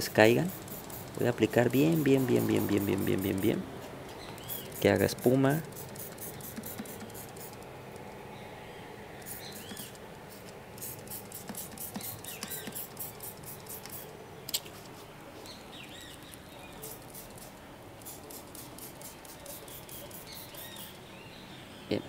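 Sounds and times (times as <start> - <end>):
spray bottle squirting: 0.4 - 3.4, 4.2 - 7.7, 9.2 - 15.0, 16.8 - 20.9.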